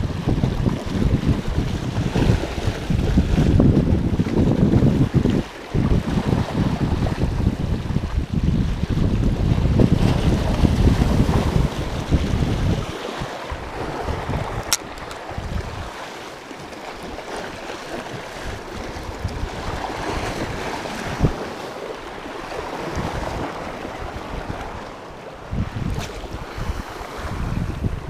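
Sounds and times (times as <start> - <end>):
waves washing over rocks: 0.0 - 28.0
wind buffeting microphone: 0.0 - 28.0
sharp click: 14.6 - 15.2.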